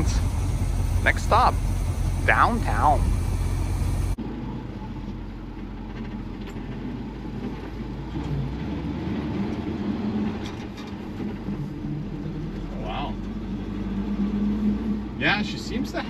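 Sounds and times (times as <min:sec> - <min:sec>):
truck engine idling: 0:00.0 - 0:08.1
truck engine driving: 0:00.0 - 0:16.0.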